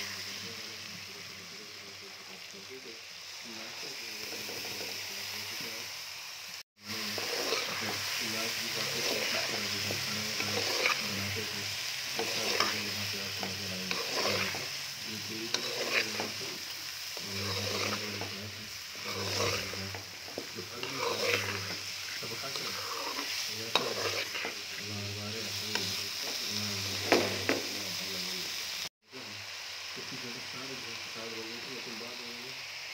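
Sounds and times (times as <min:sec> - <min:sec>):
frying sizzle: 0:00.0 - 0:32.9
metal spoon scraping a pot: 0:07.0 - 0:08.1, 0:08.8 - 0:11.6, 0:12.2 - 0:14.8, 0:15.4 - 0:16.4, 0:17.2 - 0:24.8.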